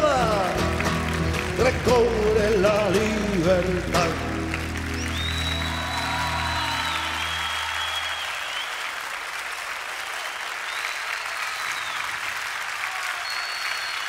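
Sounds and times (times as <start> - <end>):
audience applauding: 0.0 - 14.0
high whistles: 4.9 - 8.9, 10.4 - 12.2, 13.2 - 14.0.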